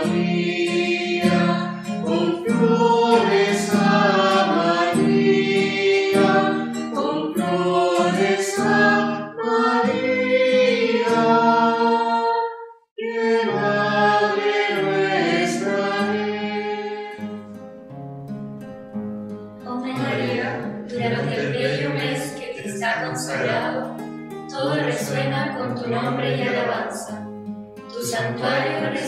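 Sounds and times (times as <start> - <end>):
choir singing a hymn: 0.0 - 17.4, 19.7 - 27.2, 27.9 - 29.0.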